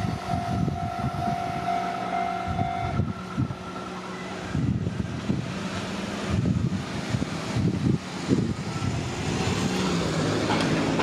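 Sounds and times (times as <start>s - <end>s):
engine tone: 0.0s - 8.0s
vehicles rumbling: 0.0s - 11.0s.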